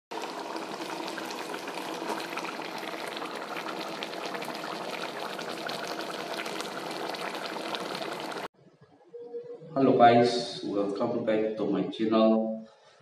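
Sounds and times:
curry bubbling in a wok: 0:00.2 - 0:08.5.

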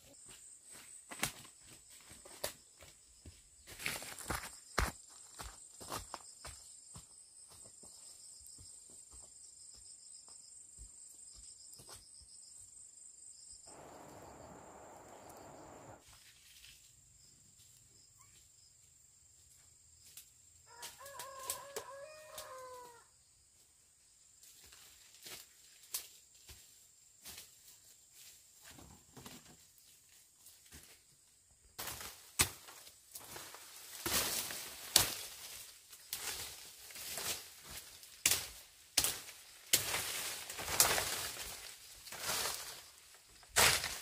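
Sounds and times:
brief rushing hiss: 0:13.7 - 0:16.0
rooster crowing: 0:20.7 - 0:23.2.

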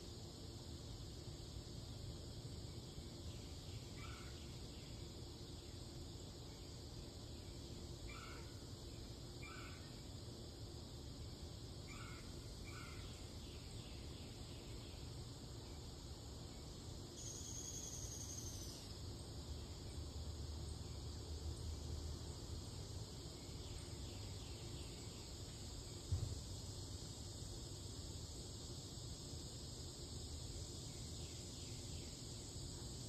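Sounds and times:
insects chirping and buzzing: 0:00.0 - 0:33.0.

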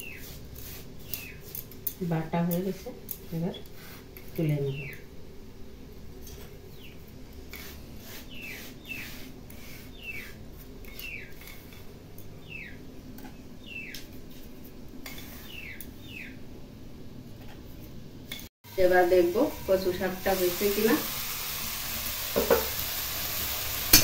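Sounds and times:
bird chirping: 0:04.6 - 0:05.1, 0:09.9 - 0:10.3, 0:10.9 - 0:11.4, 0:12.3 - 0:12.8, 0:13.4 - 0:14.0, 0:15.4 - 0:16.4
hand sweeping powder on stone: 0:07.5 - 0:11.8.

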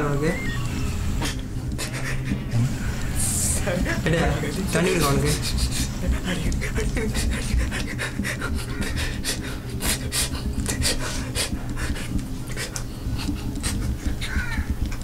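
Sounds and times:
man panting hard: 0:01.3 - 0:02.5, 0:05.4 - 0:14.2.

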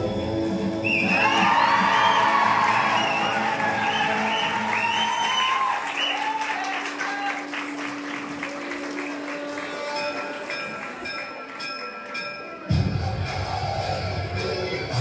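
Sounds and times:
dance music: 0:00.0 - 0:05.8, 0:06.9 - 0:15.0
audience clapping and cheering: 0:00.9 - 0:12.7.

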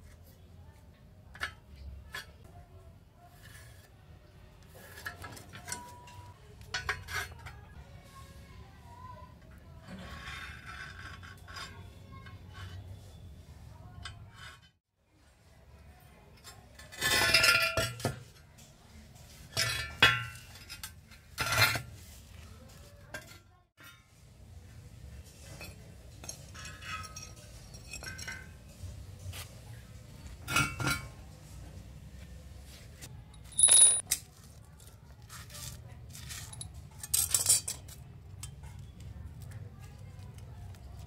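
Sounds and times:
steel tubes clinking together: 0:25.5 - 0:28.7, 0:33.4 - 0:34.2, 0:36.4 - 0:38.6.

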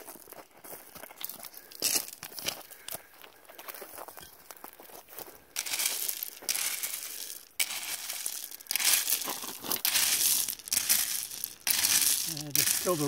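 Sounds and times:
hand cultivator raking gravel: 0:05.6 - 0:13.0.

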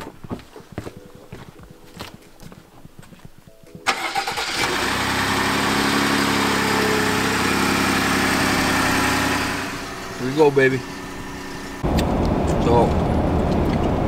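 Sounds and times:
truck engine starting and idling: 0:03.8 - 0:14.0.

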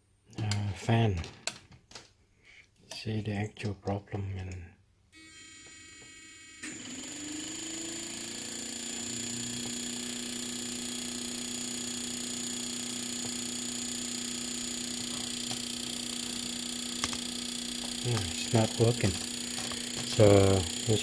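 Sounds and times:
electrical hum with hiss: 0:04.6 - 0:21.0.

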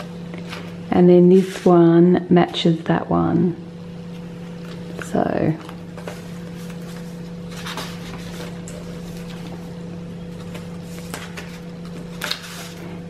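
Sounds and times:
steady low hum: 0:00.0 - 0:13.0
paper pages rustling: 0:05.6 - 0:13.0.

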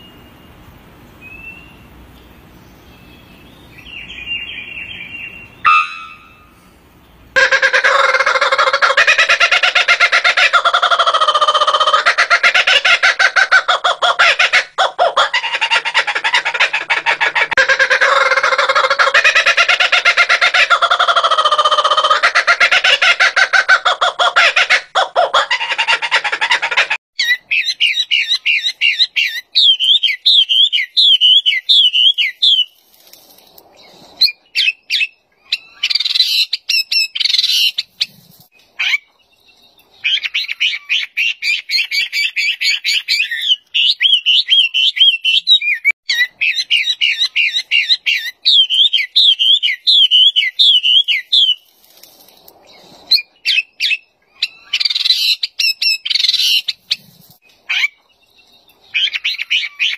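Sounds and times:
bird singing rapid whistled song: 0:01.2 - 0:01.9, 0:02.7 - 0:06.5, 0:27.2 - 0:32.8, 0:39.4 - 0:51.6.

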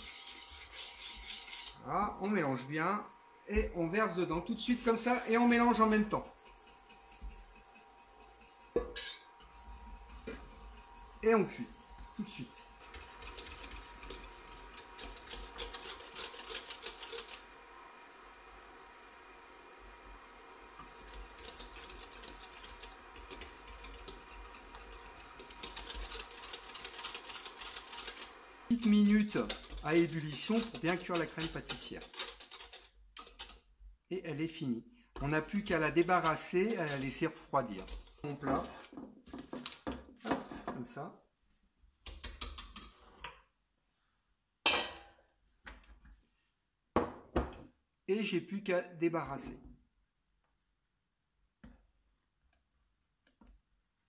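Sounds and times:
whisk rattling in metal saucepan: 0:00.0 - 0:02.6, 0:03.8 - 0:17.6, 0:20.8 - 0:33.7, 0:35.2 - 0:40.7, 0:42.0 - 0:43.1
kitchenware clattering: 0:08.7 - 0:09.6, 0:44.7 - 0:45.2
cling film crinkling: 0:20.9 - 0:33.5.

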